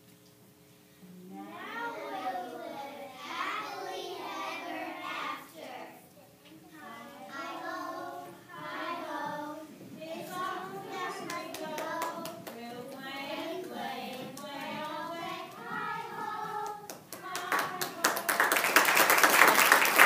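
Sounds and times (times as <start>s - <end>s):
children singing together: 1.5s - 6.1s, 6.7s - 18.5s
hand claps: 11.3s - 13.0s, 16.6s - 20.0s.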